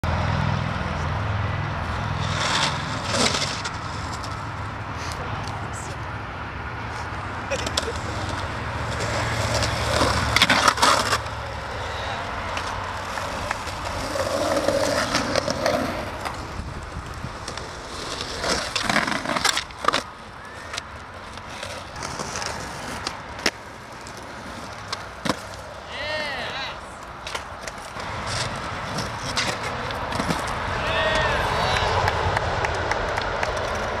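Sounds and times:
skateboard wheels rolling on concrete: 0.0s - 34.0s
skateboard clacking on concrete: 7.5s - 34.0s.

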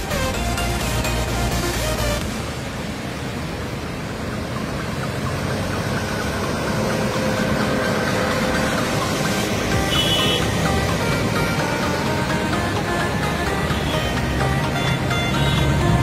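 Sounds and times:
tyres hissing on wet road: 0.0s - 16.0s
vehicle engines running: 0.0s - 16.0s.

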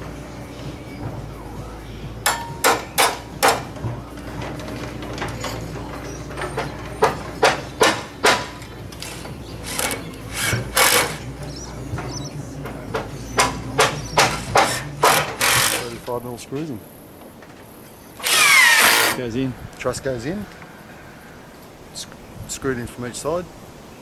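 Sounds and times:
hammer striking timber: 2.2s - 4.0s, 6.5s - 11.2s, 12.9s - 16.0s.

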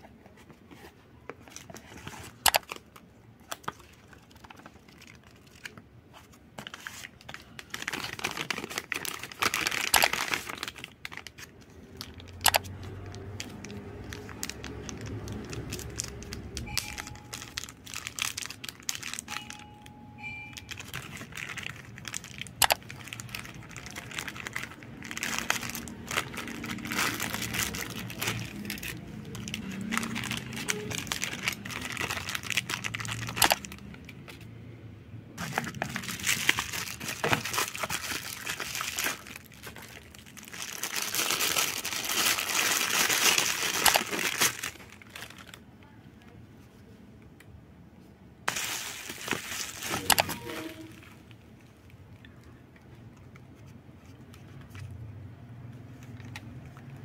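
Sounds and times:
plastic bag crinkling: 1.4s - 19.7s, 20.6s - 34.0s, 35.4s - 45.7s, 48.5s - 52.4s
bubble wrap crackling: 6.6s - 19.6s, 20.6s - 34.0s, 35.4s - 45.7s, 48.5s - 51.8s.

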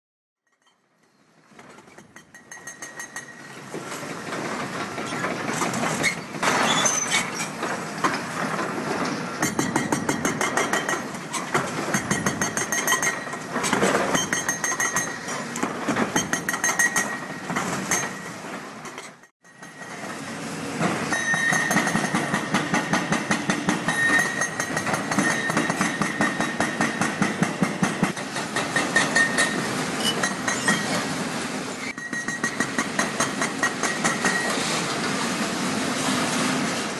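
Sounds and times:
hydraulic breaker hammering concrete: 9.4s - 15.2s, 20.8s - 29.6s.

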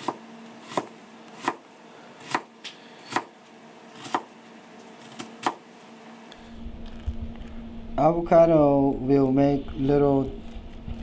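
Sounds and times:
knife chopping carrot on board: 0.0s - 1.6s, 2.2s - 2.5s, 3.1s - 3.3s, 4.0s - 4.3s, 5.2s - 5.6s.

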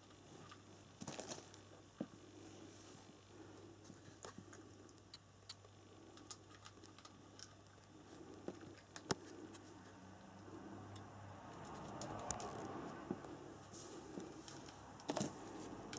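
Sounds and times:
low steady hum: 0.0s - 15.9s
faint small clicks and ticks: 4.2s - 9.7s, 10.4s - 13.4s.

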